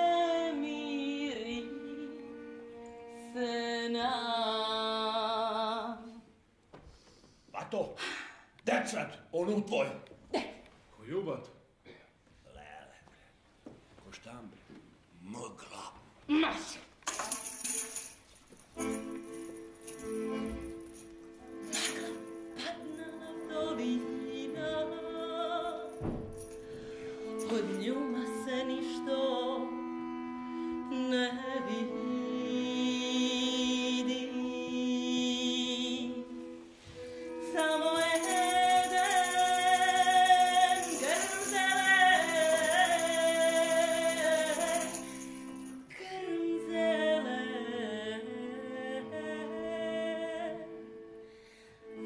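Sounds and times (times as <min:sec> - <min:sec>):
person singing folk song: 0:00.0 - 0:02.6, 0:21.6 - 0:29.9, 0:30.6 - 0:51.1
instrumental accompaniment: 0:17.4 - 0:52.0.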